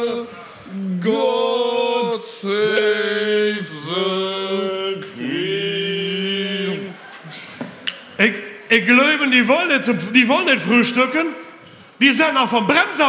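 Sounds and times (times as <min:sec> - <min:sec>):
men singing a chant: 0:00.0 - 0:07.1.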